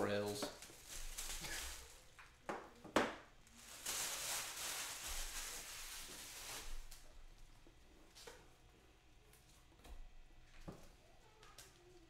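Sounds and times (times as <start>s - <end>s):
packaging rustling: 0.5s - 2.1s, 3.5s - 7.0s.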